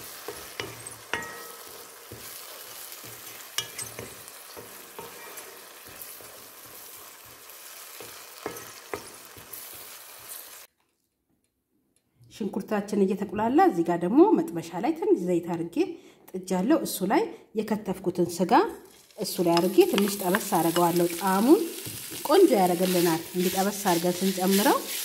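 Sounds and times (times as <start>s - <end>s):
vegetables sizzling in oil: 0.0s - 10.7s, 18.8s - 25.0s
wooden spoon scraping a pan: 0.0s - 10.7s, 18.9s - 25.0s.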